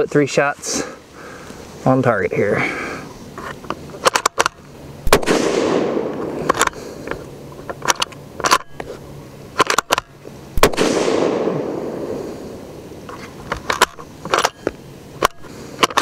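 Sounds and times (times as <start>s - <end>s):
rifle bolt metallic clicks: 3.4s - 5.4s, 6.0s - 8.9s, 9.6s - 11.3s, 13.1s - 16.0s
rifle shots with echo: 5.0s - 6.5s, 10.6s - 12.3s.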